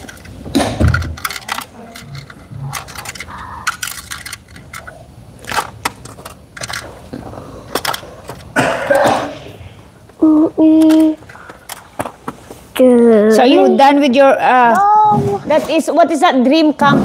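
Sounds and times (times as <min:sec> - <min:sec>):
plastic toy parts clicking: 0:00.0 - 0:06.9, 0:07.7 - 0:08.5.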